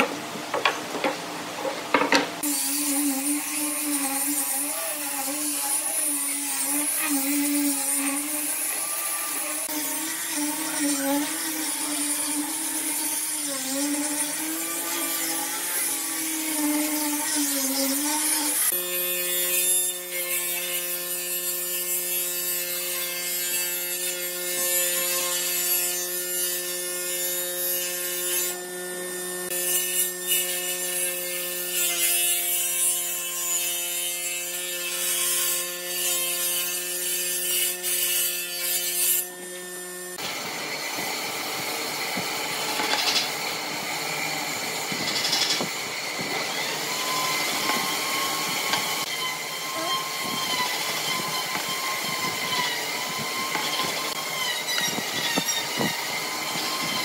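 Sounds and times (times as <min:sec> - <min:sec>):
angle grinder sanding wood: 0:00.0 - 0:57.0
jointer-planer planing wood: 0:38.6 - 0:57.0.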